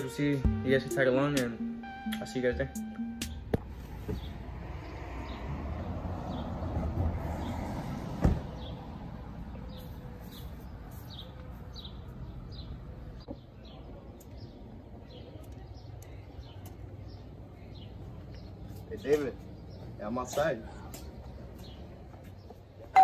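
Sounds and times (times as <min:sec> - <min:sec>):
low outdoor background: 0:00.0 - 0:23.0
truck door slamming: 0:08.2 - 0:08.7.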